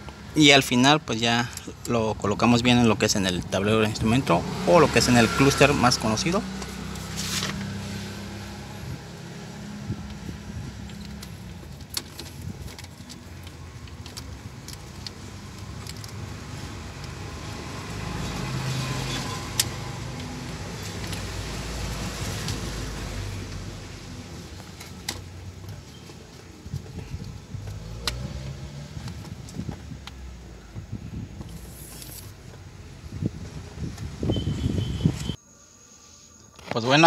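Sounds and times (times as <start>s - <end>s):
low vehicle hum: 1.0s - 35.4s
cable fittings clicking and rattling: 10.8s - 17.2s.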